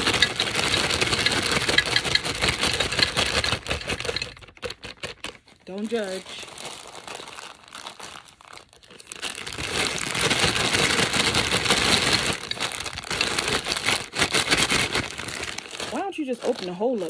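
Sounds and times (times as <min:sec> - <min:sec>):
plastic bag crinkling: 0:00.0 - 0:17.0.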